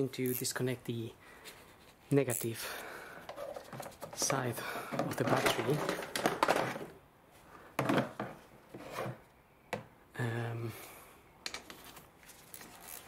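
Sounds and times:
light handling sounds: 1.4 - 9.1.

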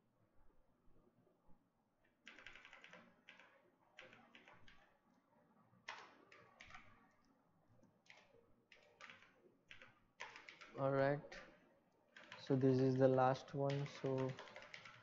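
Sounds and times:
computer keyboard keystrokes: 2.2 - 4.9, 5.9 - 7.0, 8.1 - 15.0.

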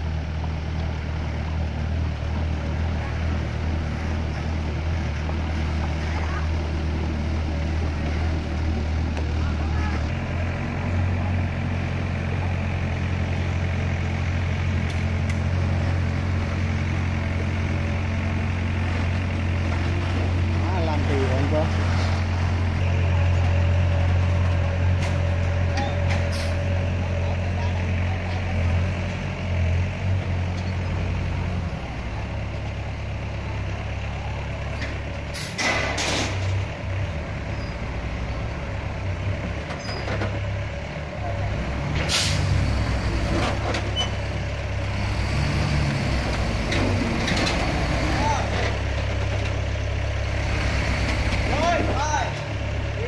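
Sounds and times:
diesel truck engine running: 0.0 - 53.0
air brake hisses: 42.1 - 42.5.

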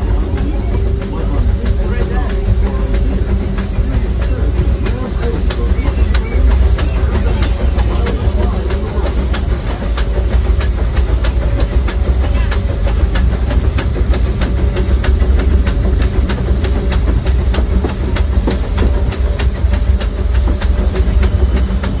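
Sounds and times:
steam train wheels rumbling on track: 0.0 - 22.0.

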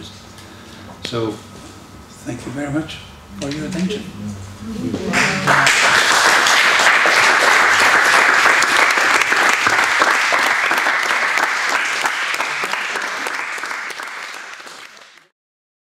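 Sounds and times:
audience applauding: 5.0 - 15.3.

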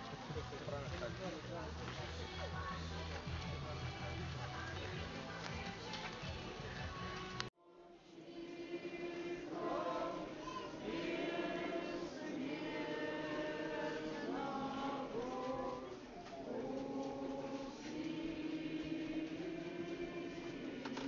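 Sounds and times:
church choir chanting in held chords: 7.6 - 21.0.

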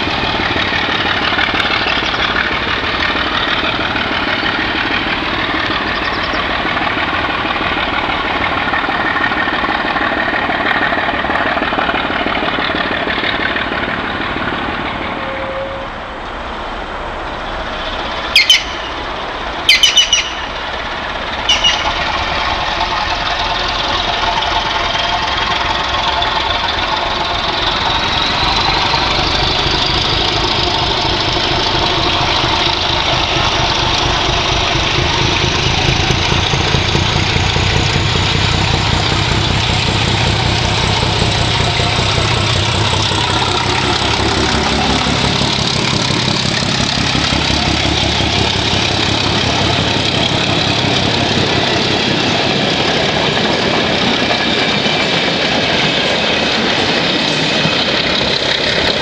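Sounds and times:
coaches rolling by: 0.0 - 59.0
diesel locomotive engine beating: 0.0 - 59.0
high whine climbing in pitch: 15.0 - 59.0.

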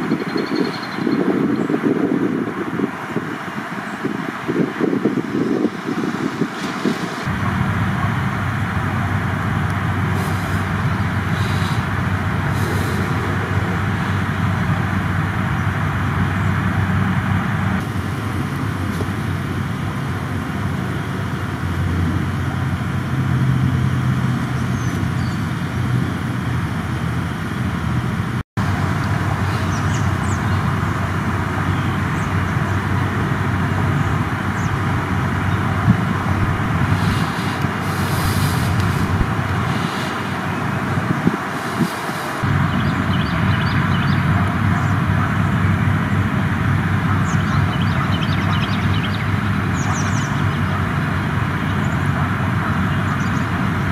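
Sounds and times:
rumble of road traffic: 0.0 - 53.9.

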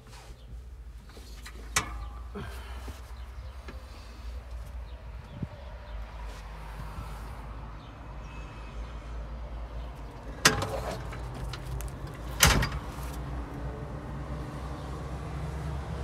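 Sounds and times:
seat clunking: 10.0 - 13.3.

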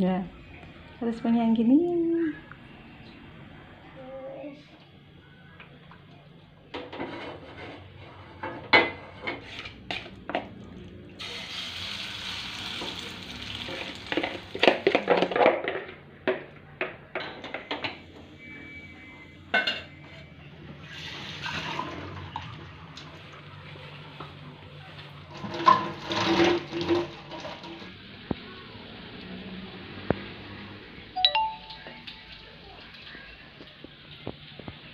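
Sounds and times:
dishes clattering: 6.7 - 10.6, 19.5 - 20.0
tap water running: 11.2 - 15.3, 20.8 - 24.4, 25.0 - 30.4.

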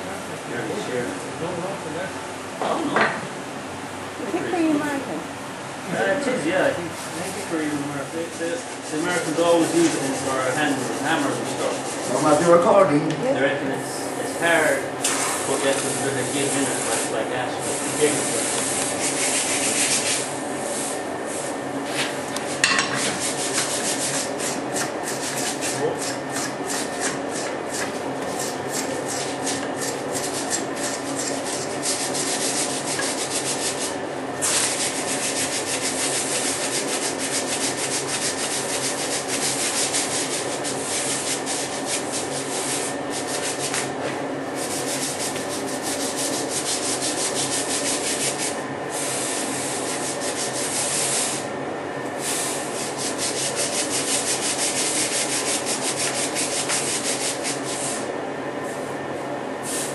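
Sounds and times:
abrasive rubbing strokes: 7.5 - 12.6.

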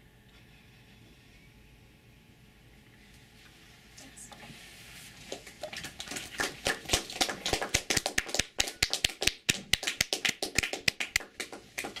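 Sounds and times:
people clapping: 5.3 - 12.0.

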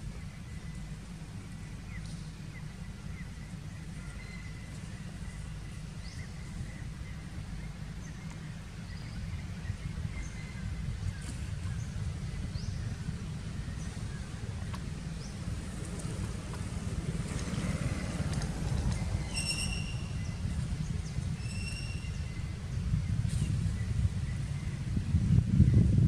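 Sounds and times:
wind rumble on microphone: 0.0 - 26.0
high bird chirps: 19.2 - 20.4.

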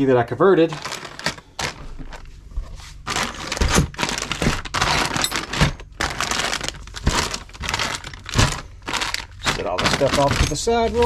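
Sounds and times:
plastic bags crinkling: 0.6 - 11.0
dull thumps: 1.2 - 11.0.

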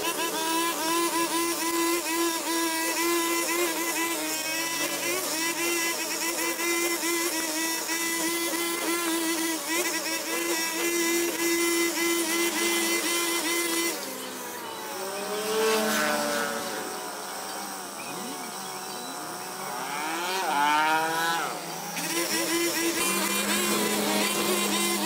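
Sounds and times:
small petrol engine revving: 0.0 - 25.0.

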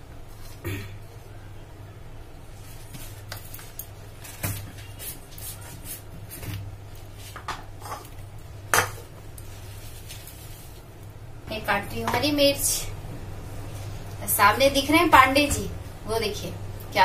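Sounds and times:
low steady hum: 0.0 - 17.0
dishes clinking and knocking: 8.7 - 9.1.

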